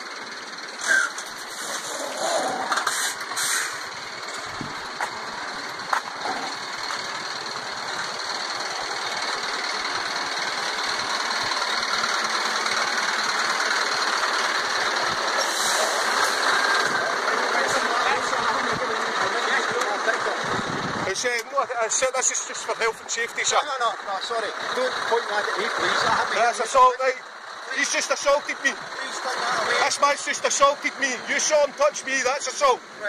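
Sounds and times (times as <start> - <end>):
lorry engine rumbling: 0.0 - 33.0.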